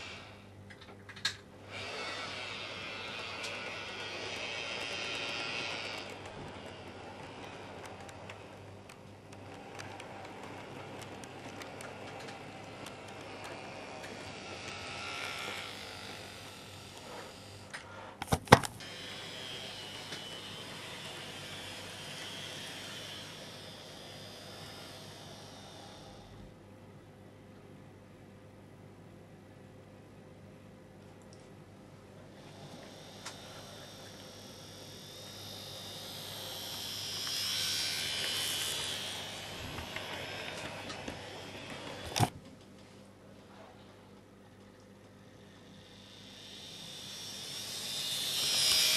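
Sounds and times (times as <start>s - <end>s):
model train whirring: 0.0s - 18.1s, 18.8s - 26.6s, 32.2s - 42.3s, 45.4s - 48.9s
sharp clicks and knocks: 3.4s - 16.2s.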